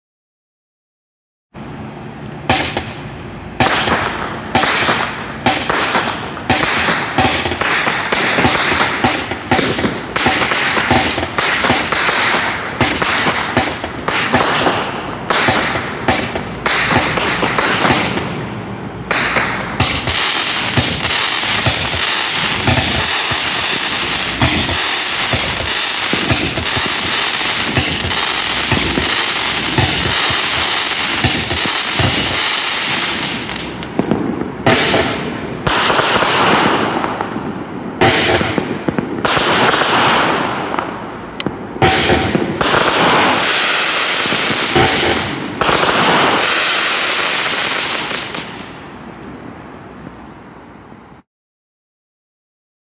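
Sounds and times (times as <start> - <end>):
fireworks shots and bursts: 1.6 - 49.0
rushing hiss with small pops: 1.6 - 51.3.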